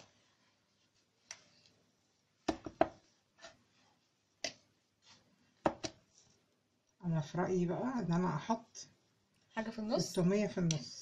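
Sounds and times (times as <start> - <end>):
flatbread knocking on plastic board: 2.5 - 3.0.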